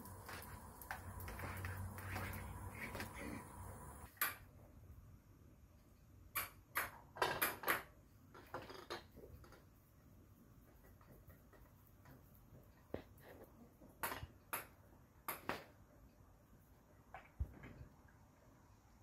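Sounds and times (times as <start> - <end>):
steady low hum: 0.0 - 4.1.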